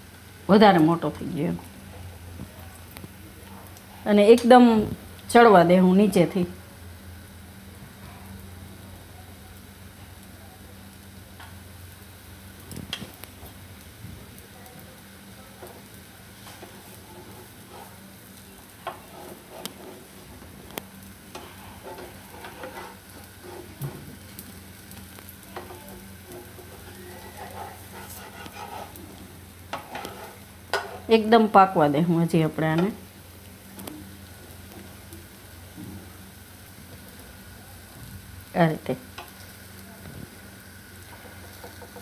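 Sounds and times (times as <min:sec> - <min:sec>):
batter sizzling in pan: 0:00.0 - 0:42.0
spatula scraping and tapping pan: 0:15.6 - 0:18.0, 0:18.8 - 0:31.1, 0:41.1 - 0:42.0.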